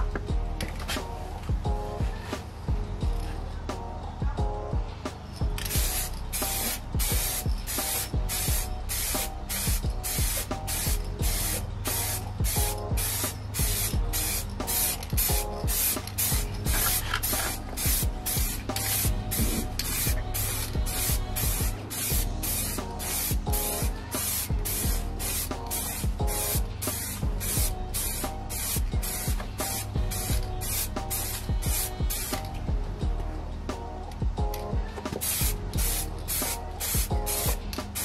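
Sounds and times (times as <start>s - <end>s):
spray can hissing bursts: 5.2s - 32.5s, 35.2s - 38.0s.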